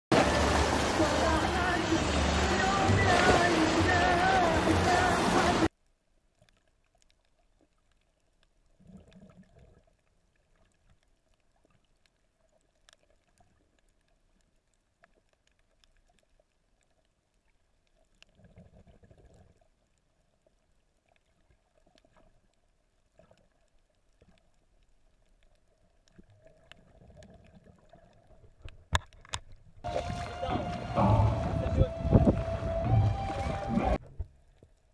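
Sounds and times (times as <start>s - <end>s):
low rushes of water: 0.1s - 34.9s
faint underwater clicks: 5.8s - 29.9s.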